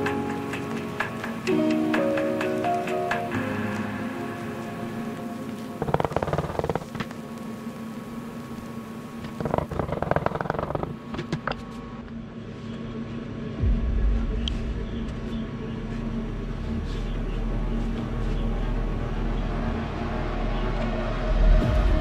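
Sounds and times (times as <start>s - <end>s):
workshop machinery humming: 0.0s - 13.6s
rapid rattling: 5.8s - 7.2s, 9.2s - 11.6s
deep low rumble: 13.2s - 22.0s.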